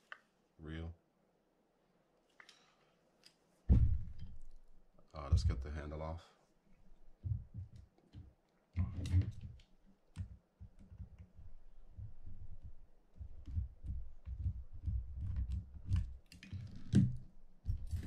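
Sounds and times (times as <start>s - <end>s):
dull bumps on a mat: 3.7s - 4.4s.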